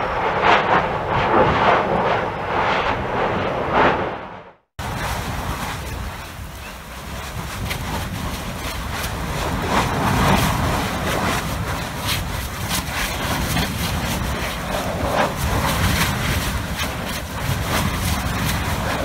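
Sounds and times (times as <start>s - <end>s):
lava fountain rumble and hiss: 4.8s - 19.0s.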